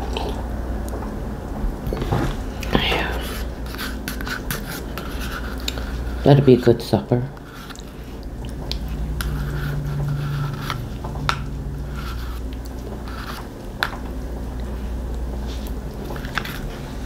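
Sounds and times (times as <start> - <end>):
person eating mouth sounds: 0.0 - 0.5
steady low hum: 0.0 - 17.0.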